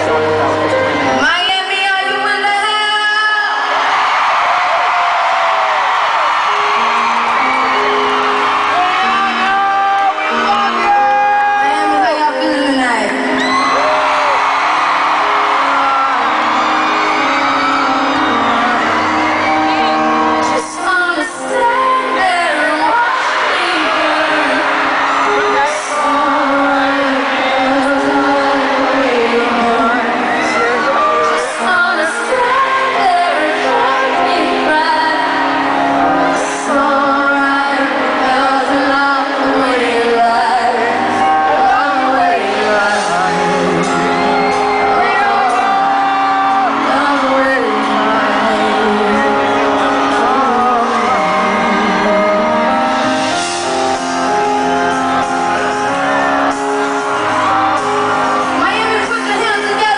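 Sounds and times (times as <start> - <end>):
band backing music: 0.0 - 59.9
woman singing into a microphone: 1.0 - 3.7, 11.0 - 13.4, 20.4 - 45.7, 46.6 - 53.4, 57.8 - 59.9.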